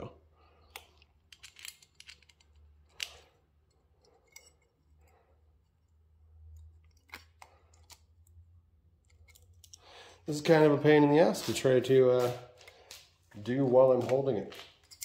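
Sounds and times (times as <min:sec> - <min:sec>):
faint clicks of metal parts: 0:00.6 - 0:10.2, 0:14.0 - 0:15.0.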